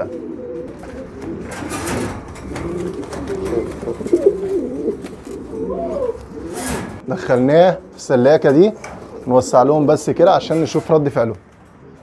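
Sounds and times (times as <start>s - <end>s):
pigeons cooing: 0.0s - 12.0s
wire cage rattling: 0.4s - 5.6s.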